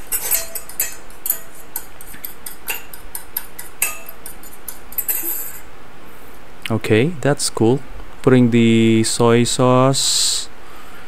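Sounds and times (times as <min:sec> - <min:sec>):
fork beating eggs in bowl: 0:00.0 - 0:05.6.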